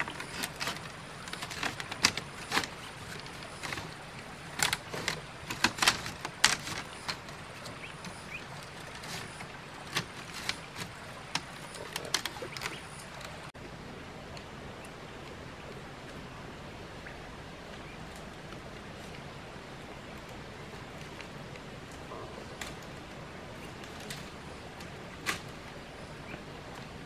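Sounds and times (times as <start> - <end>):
bamboo strips clacking and scraping: 0.0 - 13.5, 20.2 - 25.7.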